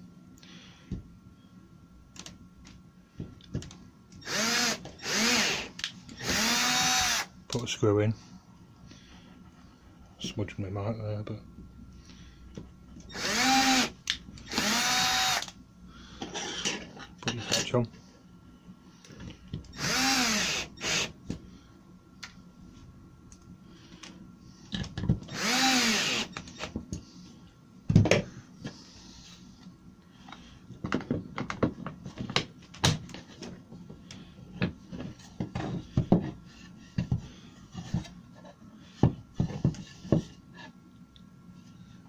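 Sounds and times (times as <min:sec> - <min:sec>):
cordless drill driving screws: 0:04.2 - 0:07.3, 0:13.1 - 0:15.5, 0:19.7 - 0:21.1, 0:25.3 - 0:26.4.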